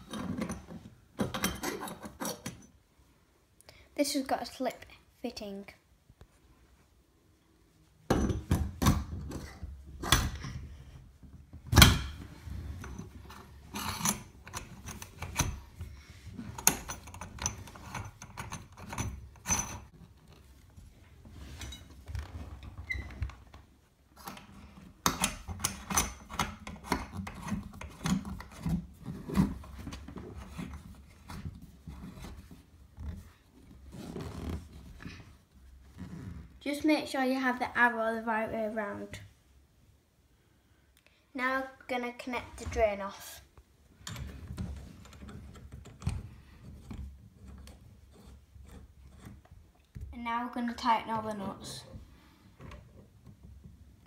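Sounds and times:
metal clicks knocks and rubbing: 11.5s - 20.5s, 24.2s - 33.2s, 44.0s - 50.0s.

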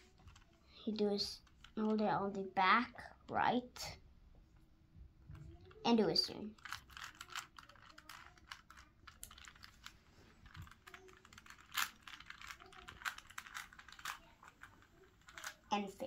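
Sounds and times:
puzzle cube layers clicking: 6.6s - 15.6s.

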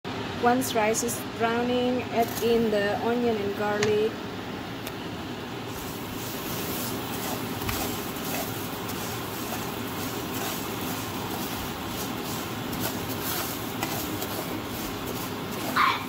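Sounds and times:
steady background noise: 0.1s - 16.0s
rice scraping in a pan: 5.7s - 16.0s.

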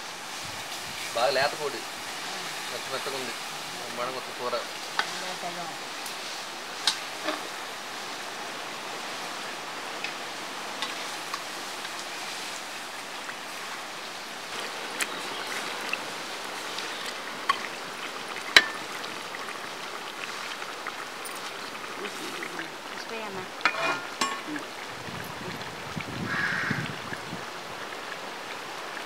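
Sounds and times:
chicken sizzling in hot oil: 0.0s - 25.4s, 26.2s - 26.8s
metal ladle clinking against pan: 23.6s - 24.5s.

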